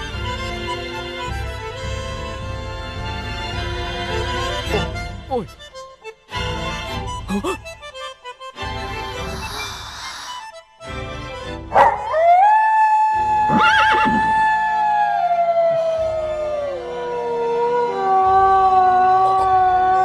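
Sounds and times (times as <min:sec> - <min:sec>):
background music: 0:00.0 - 0:20.0
wolf-like howl: 0:11.8 - 0:20.0
horse whinnying: 0:13.5 - 0:14.4.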